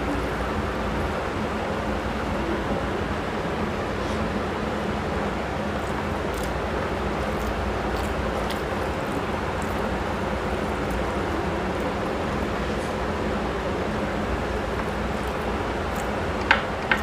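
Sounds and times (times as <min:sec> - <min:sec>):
fingers mixing rice clicks: 0:05.4 - 0:12.8, 0:14.4 - 0:17.0
chewing: 0:05.7 - 0:13.0, 0:14.7 - 0:16.4.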